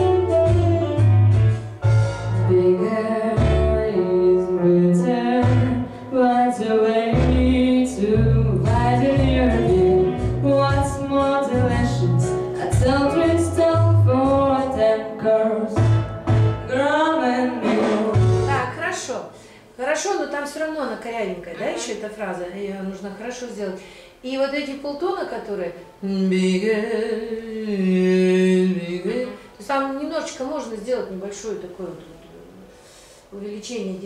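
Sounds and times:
accompaniment with bass and guitar: 0.0 - 6.2, 6.9 - 15.0, 15.7 - 16.9, 17.6 - 18.8
woman singing: 2.5 - 15.9, 16.7 - 18.8, 26.0 - 30.1.

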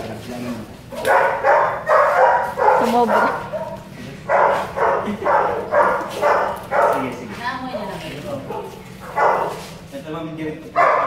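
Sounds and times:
dog barking: 0.9 - 7.4, 8.4 - 9.8, 10.7 - 11.0.

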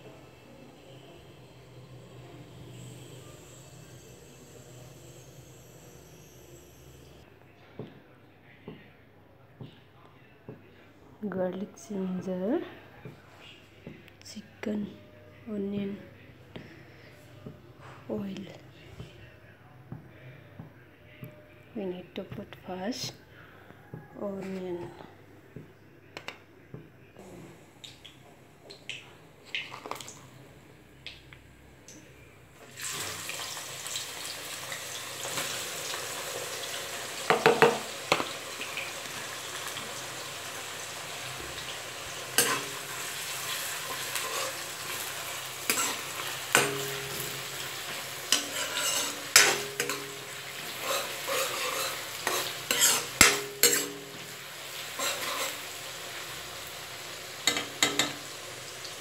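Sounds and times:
onions sizzling in oil: 0.0 - 7.2, 32.6 - 59.0
metal spoon scraping a pan: 42.3 - 55.9, 57.4 - 58.3.

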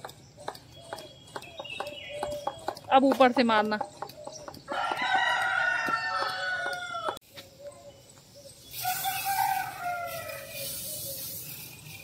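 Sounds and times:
rooster crowing: 4.7 - 7.2, 8.8 - 10.7
insecticide sprayer hissing: 8.2 - 12.0.

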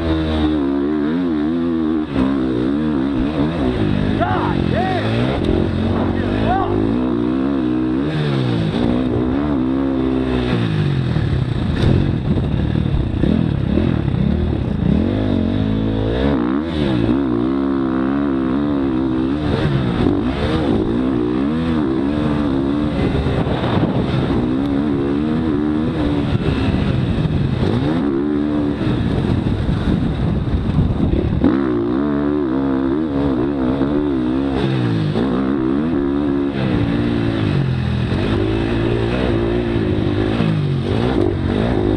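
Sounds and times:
dirt bike engine revving: 0.0 - 41.9
wind on microphone: 8.1 - 15.8, 18.8 - 41.9.

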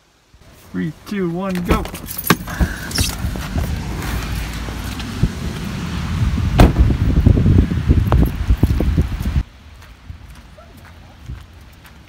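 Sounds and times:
footsteps splashing on wet pavement: 2.7 - 5.7, 8.1 - 12.0
car door slamming: 6.6 - 6.9.

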